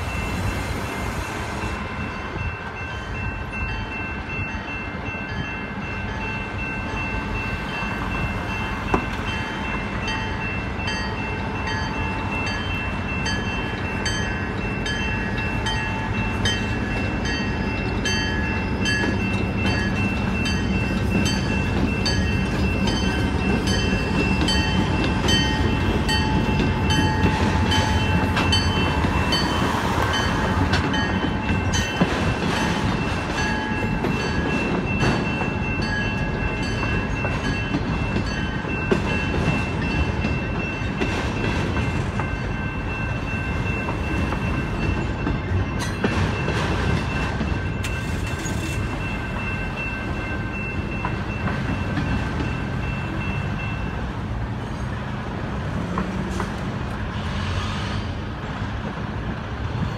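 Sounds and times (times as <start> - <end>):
crossing bell dinging: 0.0 - 57.2
diesel locomotives passing: 0.0 - 59.9
train wheels clattering: 11.6 - 53.9, 55.6 - 59.9.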